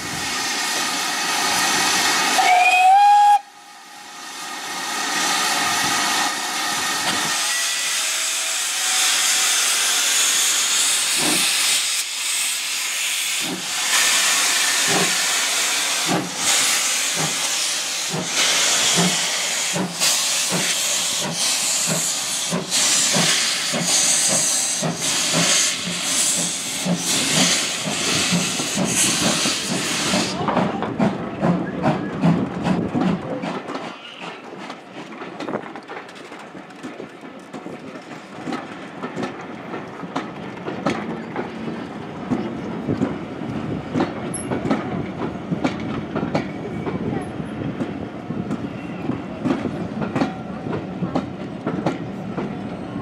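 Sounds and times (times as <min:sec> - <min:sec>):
steam hissing: 0:00.0 - 0:30.4
steam locomotive whistle: 0:02.3 - 0:03.8, 0:07.4 - 0:10.5.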